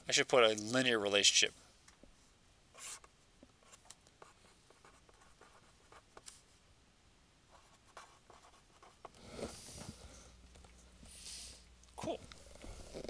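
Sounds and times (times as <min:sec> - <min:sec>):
marker pen writing on paper: 0:02.7 - 0:06.3, 0:07.5 - 0:09.2.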